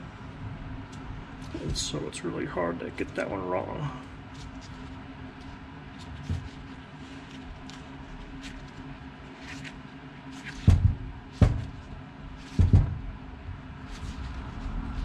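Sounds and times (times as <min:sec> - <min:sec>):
tools knocking on workbench: 0:10.6 - 0:11.8, 0:12.5 - 0:13.1.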